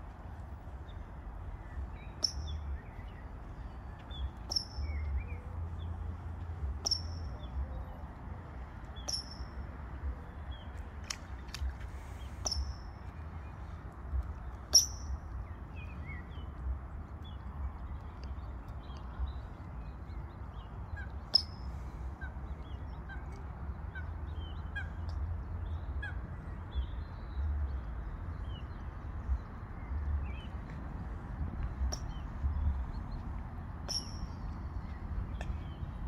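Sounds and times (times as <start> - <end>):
birds chirping: 0.0 - 36.0.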